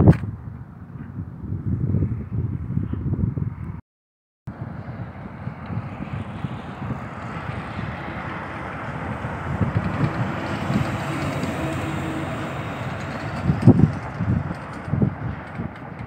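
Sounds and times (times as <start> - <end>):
wind buffeting microphone: 0.0 - 3.8, 4.5 - 16.0
truck driving past: 4.5 - 16.0.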